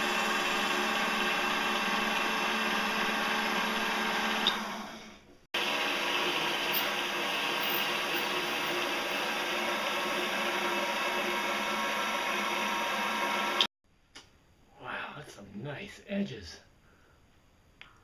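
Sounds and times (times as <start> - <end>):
metal lathe humming and whining: 0.0 - 4.9, 5.6 - 13.7.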